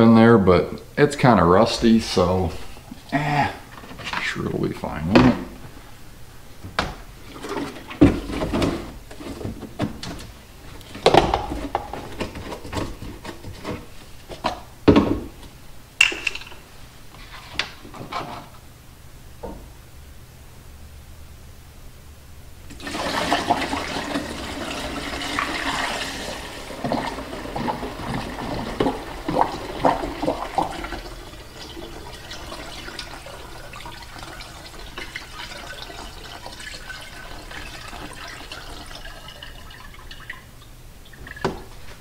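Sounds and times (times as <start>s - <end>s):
liquid pouring through funnel: 22.7s - 41.7s
liquid trickling: 22.7s - 41.7s
liquid splashing: 22.7s - 41.8s.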